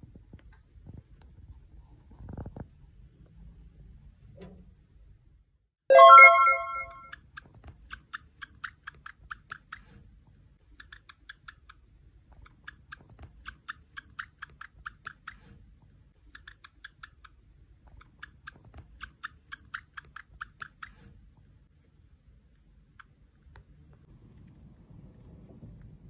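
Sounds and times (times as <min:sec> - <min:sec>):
hamster nibbling seeds: 0:07.1 - 0:26.0.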